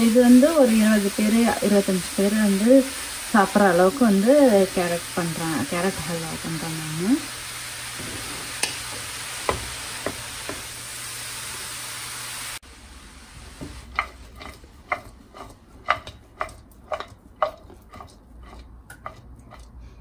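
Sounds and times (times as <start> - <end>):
carrots sizzling in fat: 0.0 - 19.6
spatula scraping pan: 7.8 - 10.7, 13.6 - 19.8.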